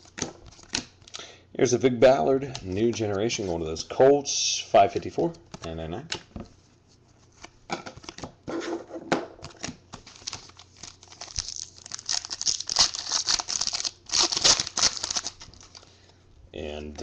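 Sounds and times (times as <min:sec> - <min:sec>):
foil wrapper tearing and crinkling: 0:10.1 - 0:15.8.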